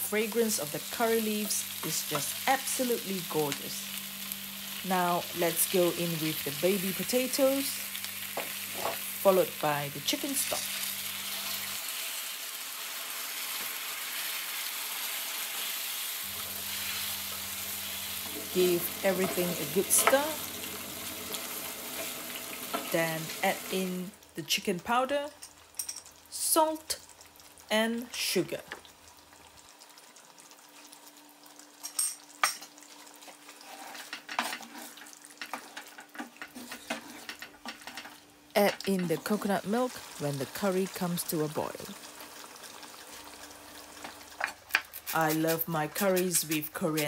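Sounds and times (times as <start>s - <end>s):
curry sizzling in a hot pan: 0.0s - 47.0s
utensil scraping a pan: 33.5s - 38.1s.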